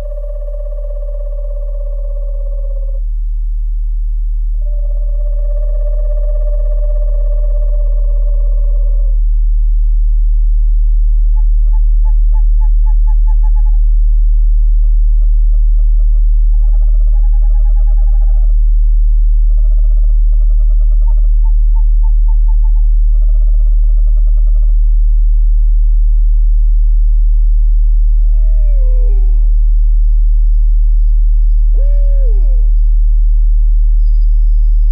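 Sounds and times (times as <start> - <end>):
owl trilled hoots: 0.0 - 3.1, 4.6 - 9.2, 11.2 - 14.0, 14.8 - 18.6, 19.4 - 24.8, 28.0 - 29.8, 30.4 - 34.9
deep meditation tone: 0.0 - 34.9.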